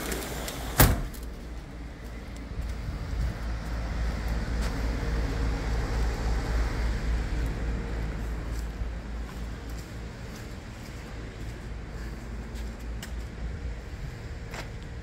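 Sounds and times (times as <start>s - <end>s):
wind buffeting microphone: 2.4s - 4.2s.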